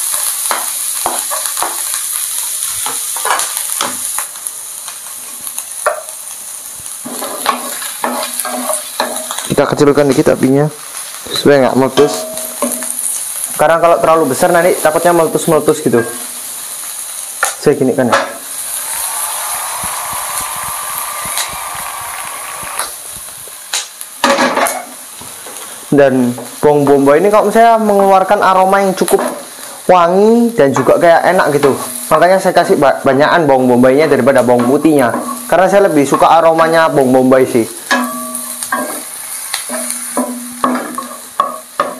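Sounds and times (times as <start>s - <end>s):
onion and garlic sizzling in oil: 0.0s - 41.9s
pan knocking: 37.9s - 39.1s, 39.7s - 41.9s.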